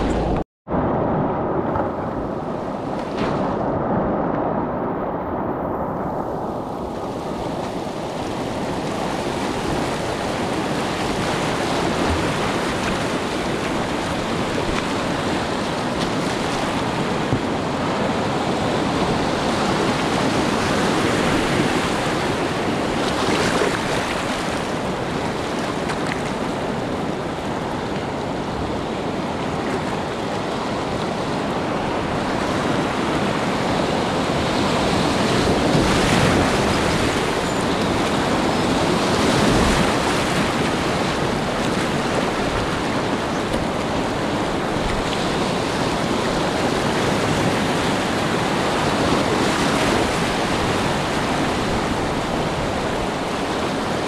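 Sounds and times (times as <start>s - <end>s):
rapids rushing: 0.0s - 0.8s, 31.0s - 54.0s
paddle splashes: 6.7s - 27.8s, 34.4s - 54.0s.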